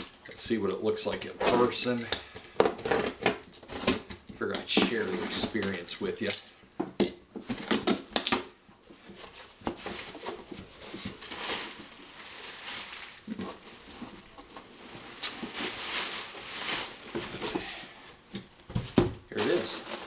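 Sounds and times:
plastic packing rustling: 0:07.4 - 0:20.0.

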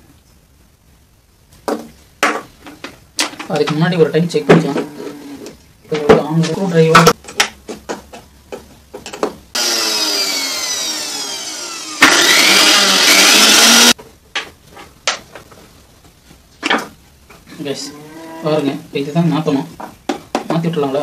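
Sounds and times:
mixer grinder motor whine: 0:09.6 - 0:14.0.

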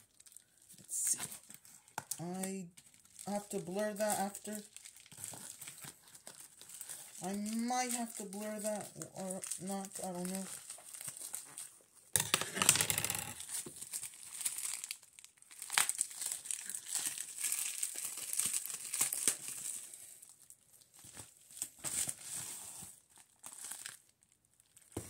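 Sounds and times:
plastic mailer crinkling and tearing: 0:00.0 - 0:25.0.

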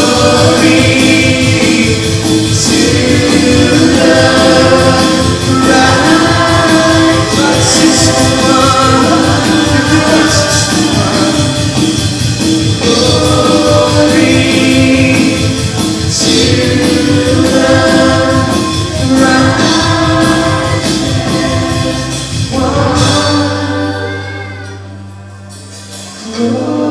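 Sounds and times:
steady drum beat: 0:00.0 - 0:24.2
congregation singing: 0:00.0 - 0:26.9
worship band playing: 0:00.0 - 0:26.9.

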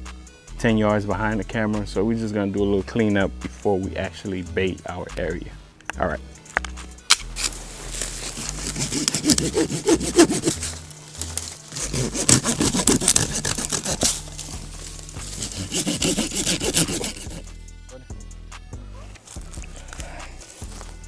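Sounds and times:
hand saw cutting tree limb: 0:07.4 - 0:17.5.

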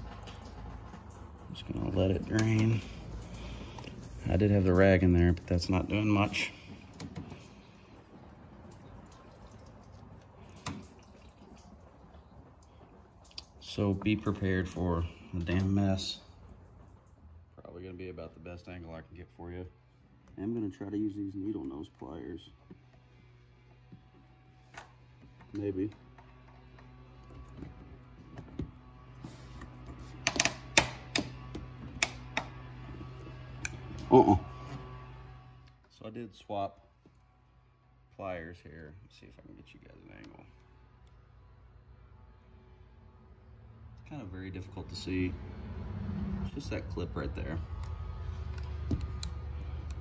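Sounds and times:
coolant trickling and dripping: 0:00.0 - 0:35.2.

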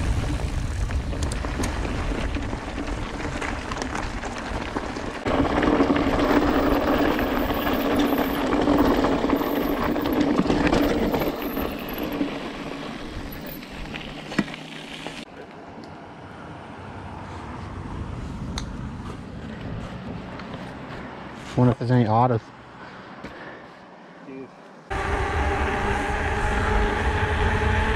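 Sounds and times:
bike tyres on gravel: 0:00.0 - 0:15.5.

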